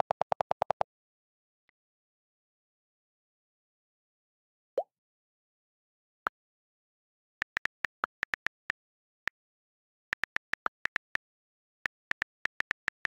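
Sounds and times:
phone keyboard clicks: 11.9s - 13.0s.

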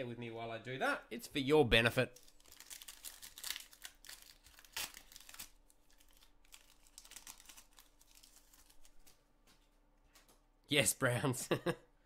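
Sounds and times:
foil card pack crinkling: 2.1s - 9.3s.

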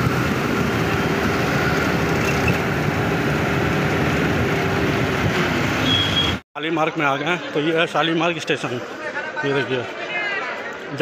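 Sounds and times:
bus engine and road noise: 0.0s - 6.4s.

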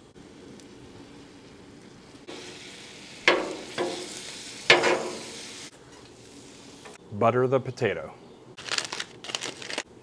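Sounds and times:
meat sizzling on a griddle: 2.0s - 6.8s
metal tongs clanking on griddle: 3.2s - 5.4s.

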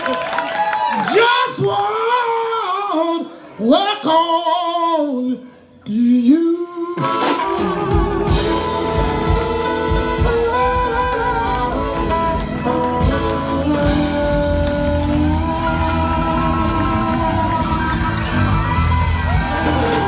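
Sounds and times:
woman singing: 1.1s - 18.3s
blues band playing: 6.8s - 20.0s.

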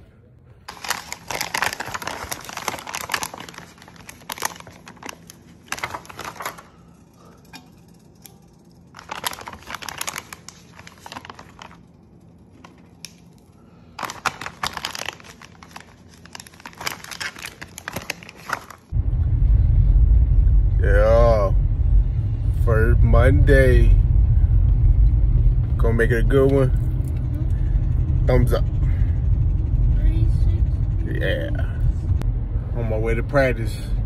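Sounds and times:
plastic package crinkling: 0.6s - 7.1s, 8.8s - 18.9s.

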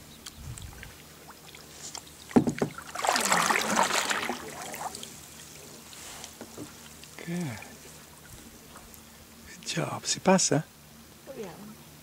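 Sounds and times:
paddle splashing through water: 0.6s - 8.7s.

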